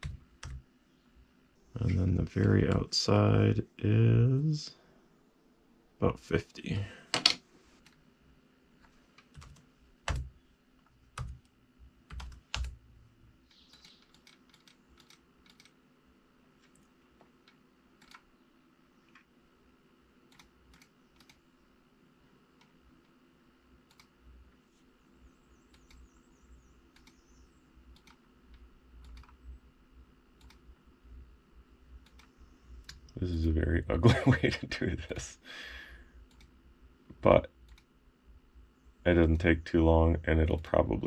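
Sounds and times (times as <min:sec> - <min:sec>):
laptop keys and mouse clicking: 0:11.1 - 0:12.8, 0:13.5 - 0:15.8, 0:16.6 - 0:18.3, 0:20.3 - 0:21.4, 0:23.8 - 0:24.2, 0:26.9 - 0:27.2, 0:27.9 - 0:29.4, 0:30.4 - 0:30.6.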